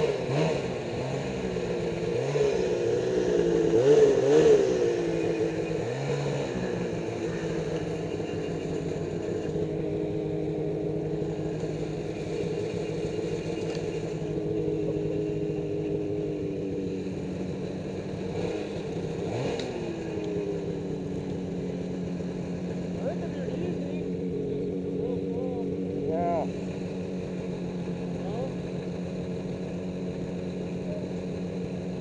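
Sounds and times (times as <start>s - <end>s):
snowmobile engine idling: 0.0s - 32.0s.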